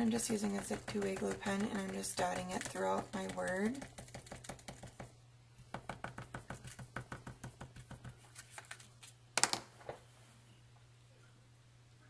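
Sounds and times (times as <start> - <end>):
glue pen tapping on cardstock: 0.2 - 5.1, 5.7 - 8.2.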